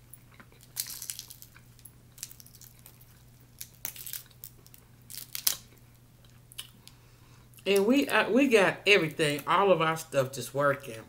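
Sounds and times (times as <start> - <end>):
crab shells cracking by hand: 0.4 - 7.0.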